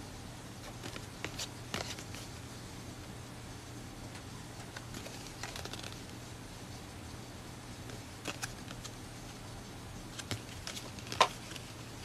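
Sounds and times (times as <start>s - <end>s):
low steady hum: 0.0s - 12.0s
cards clicking and tapping: 0.6s - 2.3s, 4.2s - 6.1s, 7.9s - 9.0s, 10.2s - 11.8s.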